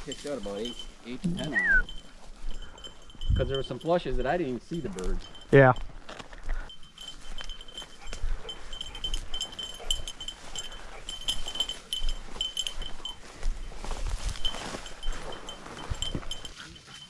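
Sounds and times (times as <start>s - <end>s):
dog collar bell jingling: 0.0s - 17.0s
brush swishing against legs: 6.9s - 17.0s.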